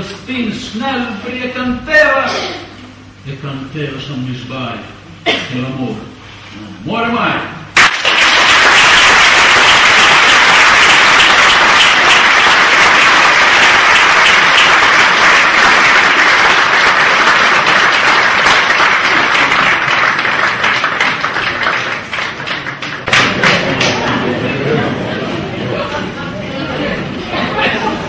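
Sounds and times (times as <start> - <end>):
audience applauding: 7.8 - 24.4.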